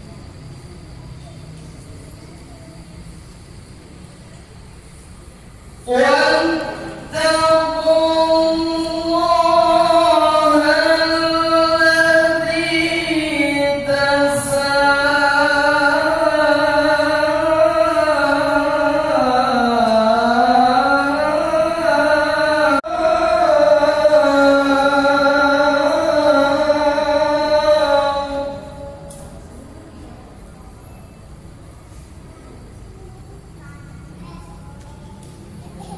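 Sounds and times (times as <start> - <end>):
person chanting recitation: 5.8 - 30.6.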